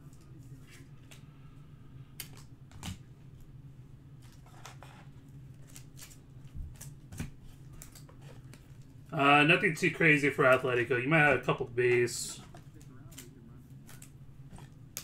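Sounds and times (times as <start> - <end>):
steady low hum: 0.0 - 15.0
trading cards rustling and clicking: 10.0 - 15.0.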